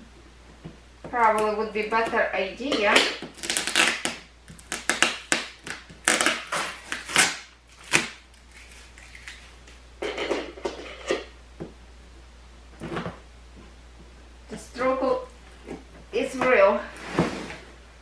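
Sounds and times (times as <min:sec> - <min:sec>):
scissors scraping packing tape: 0:03.3 - 0:09.5.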